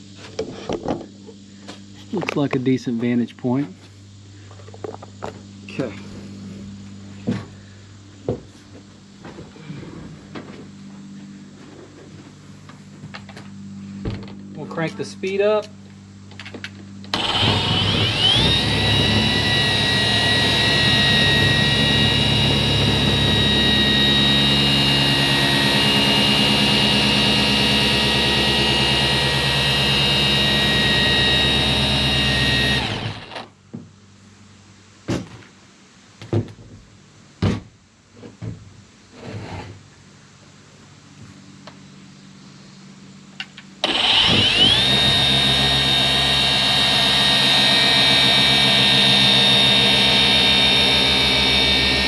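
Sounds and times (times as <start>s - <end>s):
polisher motor whine: 17.0s - 33.4s, 43.8s - 52.0s.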